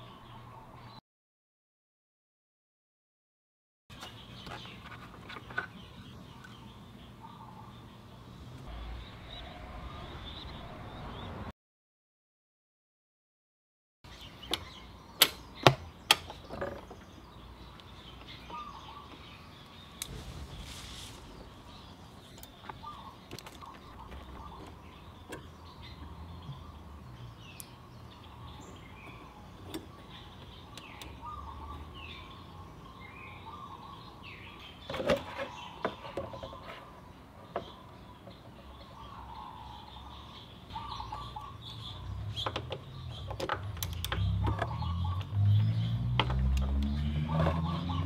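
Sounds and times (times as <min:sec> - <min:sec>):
small birds chirping: 0:00.0 - 0:01.0, 0:03.9 - 0:11.5, 0:14.1 - 0:48.0
low rumble: 0:20.0 - 0:22.6.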